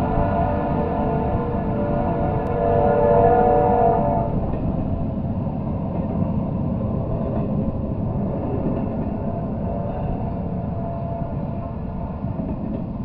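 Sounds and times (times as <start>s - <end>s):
train wheels on rail: 0.0s - 13.0s.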